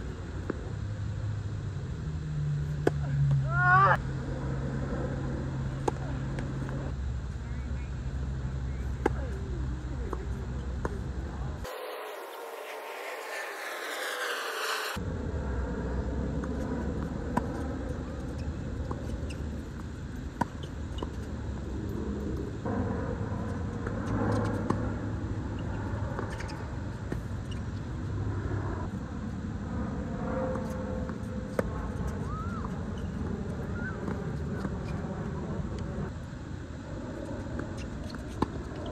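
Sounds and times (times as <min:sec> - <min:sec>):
steady low rumble: 0:00.0 - 0:38.9
tennis balls struck by racquets: 0:02.7 - 0:03.4, 0:05.7 - 0:06.9.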